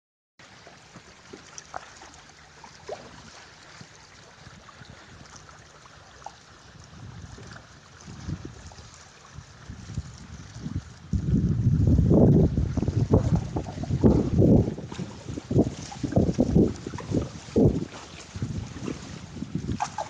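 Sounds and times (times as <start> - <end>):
waves lapping against boat hull: 0.4 - 20.0
wind buffeting microphone: 3.1 - 5.6, 6.5 - 20.0.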